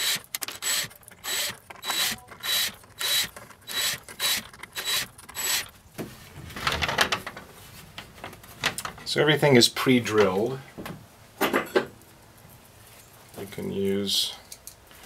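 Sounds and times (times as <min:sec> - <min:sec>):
cordless drill bursts: 0:00.0 - 0:05.7.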